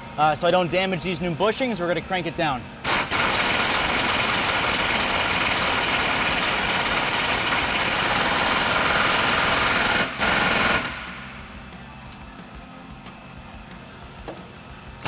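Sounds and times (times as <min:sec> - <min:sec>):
pneumatic impact wrench hammering: 0:02.8 - 0:11.3.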